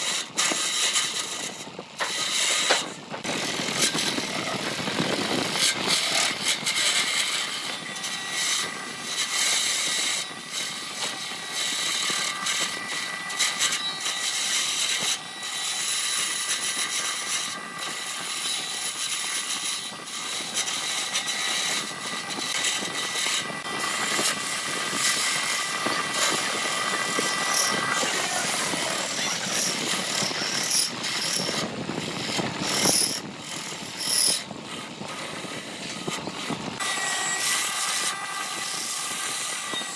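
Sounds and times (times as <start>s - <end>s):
lathe motor whine: 0.0s - 39.9s
tool scraping spinning wood: 0.0s - 39.9s.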